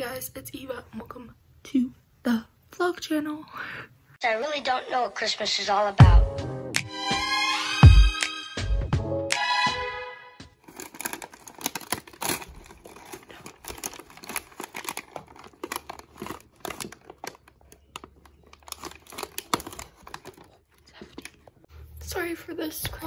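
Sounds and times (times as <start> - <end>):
foil bag crinkling: 10.6 - 21.7.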